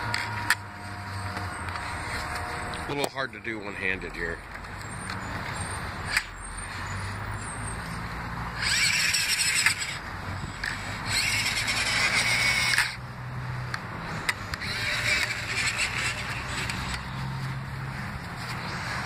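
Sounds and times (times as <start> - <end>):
toy truck motor whining: 0.0 - 3.5, 4.8 - 13.0, 14.2 - 17.4.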